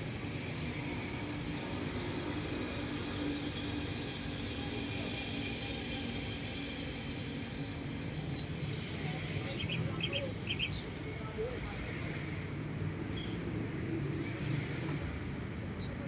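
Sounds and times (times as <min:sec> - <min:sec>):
low rumble of distant engines: 0:00.0 - 0:16.0.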